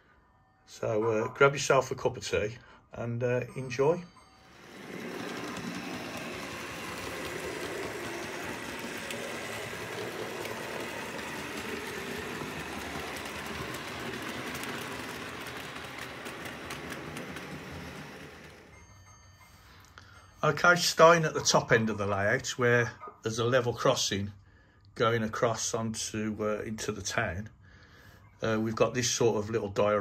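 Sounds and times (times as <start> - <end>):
wheels clicking over rail joints: 4.5 - 18.8
model train motor whirring: 4.5 - 18.9.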